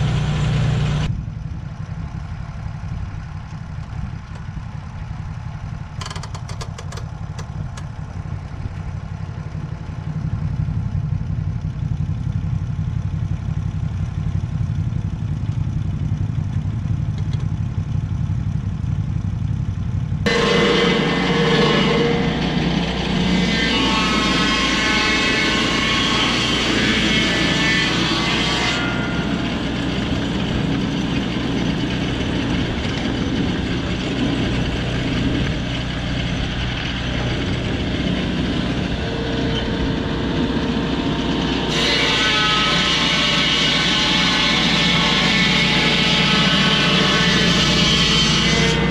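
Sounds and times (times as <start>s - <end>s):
saw blade whining through log: 0.0s - 1.1s, 20.3s - 48.9s
petrol engine running: 0.0s - 48.9s.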